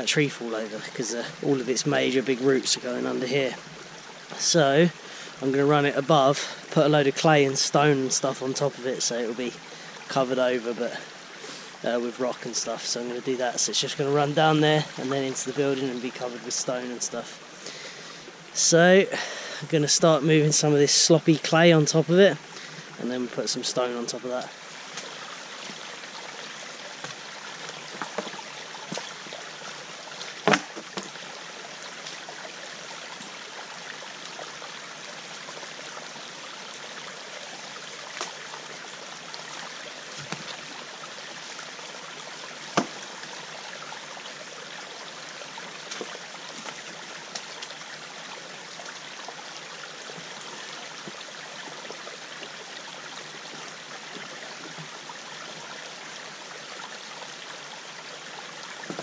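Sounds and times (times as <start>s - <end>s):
stream running over stones: 0.0s - 59.0s
sharp knocks: 30.4s - 31.1s.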